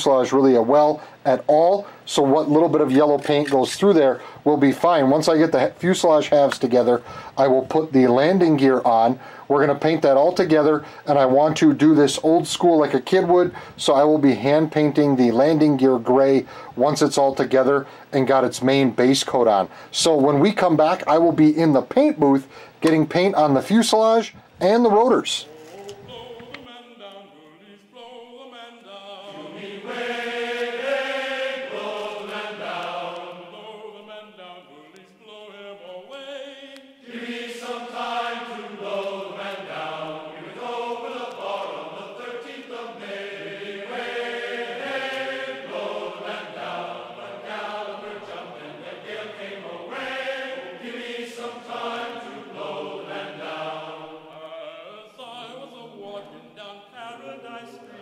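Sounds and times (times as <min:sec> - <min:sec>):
choral chanting voices: 0:25.4 - 0:58.0.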